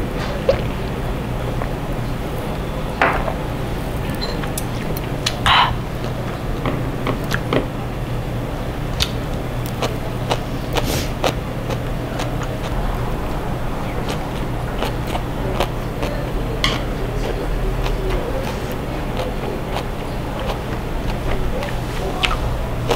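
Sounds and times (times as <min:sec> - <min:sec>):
chewing: 0:09.0 - 0:22.9.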